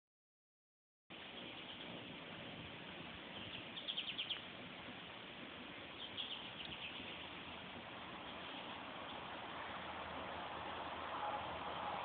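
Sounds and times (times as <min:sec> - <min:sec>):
steady background hiss: 0:01.1 - 0:12.0
bird chirping: 0:01.2 - 0:02.1, 0:03.2 - 0:04.6, 0:05.8 - 0:09.4.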